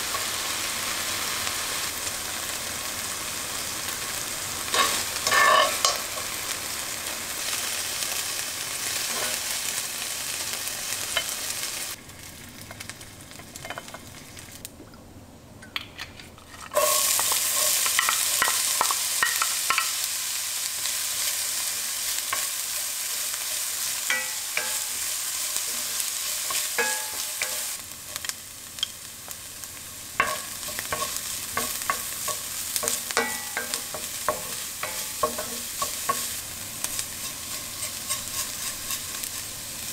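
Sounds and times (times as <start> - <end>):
chicken sizzling in frying pan: 0.0 - 14.7, 16.8 - 39.9
onion sizzling in hot oil: 0.0 - 14.7, 16.4 - 39.9
metal tongs turning food: 4.7 - 6.3, 15.7 - 20.0, 22.1 - 29.0, 30.2 - 39.6
wooden spatula scraping pot: 16.1 - 18.9, 37.0 - 39.4.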